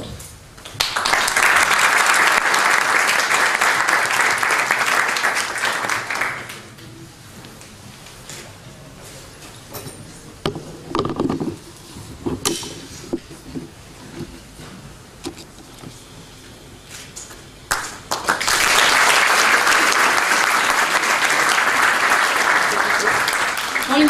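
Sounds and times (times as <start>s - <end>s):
audience applauding: 0.6s - 6.7s, 17.7s - 24.0s.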